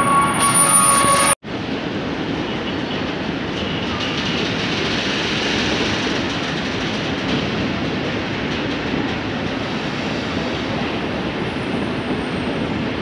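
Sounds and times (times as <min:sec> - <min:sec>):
high whine: 0:00.0 - 0:01.4
train wheels rumbling on rails: 0:00.0 - 0:13.0.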